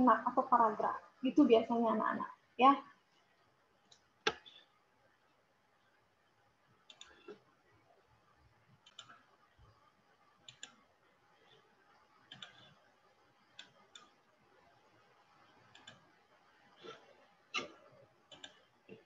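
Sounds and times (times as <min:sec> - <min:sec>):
computer mouse clicking: 0:06.9 - 0:07.4, 0:08.8 - 0:09.3, 0:10.4 - 0:10.8, 0:12.2 - 0:12.8, 0:13.5 - 0:14.2, 0:15.6 - 0:16.1, 0:16.8 - 0:19.0.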